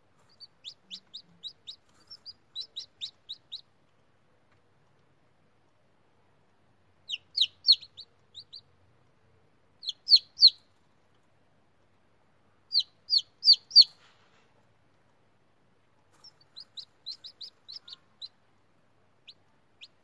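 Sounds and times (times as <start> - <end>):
chicks peeping: 0.2 - 4.6, 7.0 - 9.1, 9.8 - 10.8, 12.7 - 14.6, 15.9 - 20.0.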